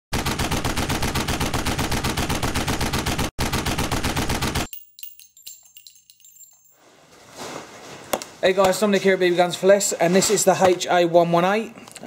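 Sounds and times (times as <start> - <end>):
automatic gunfire: 0.1 - 4.7
faint metallic clinks: 4.7 - 7.0.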